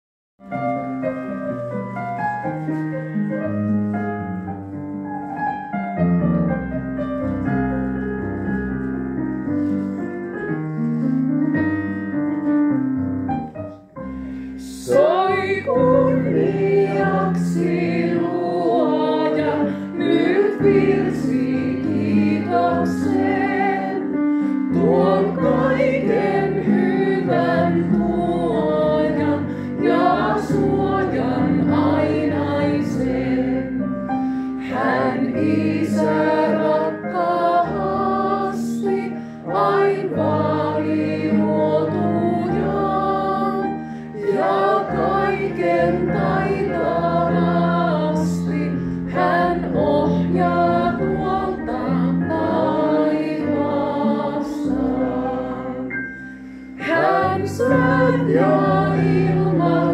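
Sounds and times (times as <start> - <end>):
piano playing a hymn: 0.4 - 59.9
woman singing: 14.7 - 16.3
audience singing along: 14.9 - 33.8, 34.6 - 56.1, 56.8 - 59.9.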